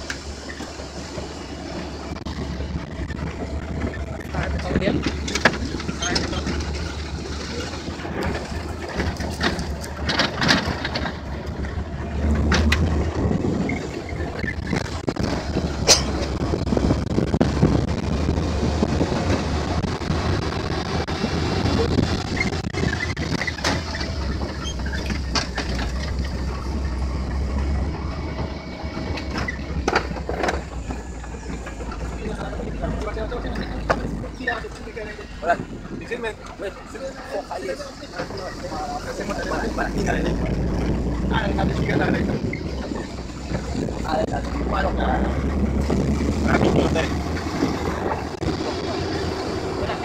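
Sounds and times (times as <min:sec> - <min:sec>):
knocks and rattles: 0:00.0 - 0:36.5
truck engine and road rumble: 0:00.0 - 0:50.0.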